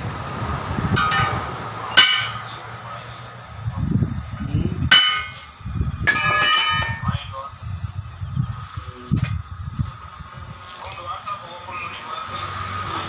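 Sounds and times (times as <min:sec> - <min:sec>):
hammer clanging on steel lever: 0:04.9 - 0:05.4.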